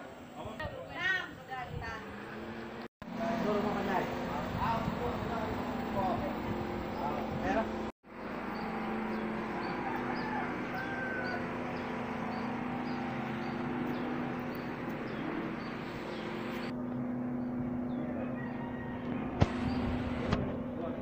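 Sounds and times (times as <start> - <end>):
steady low hum: 3.1 - 21.0.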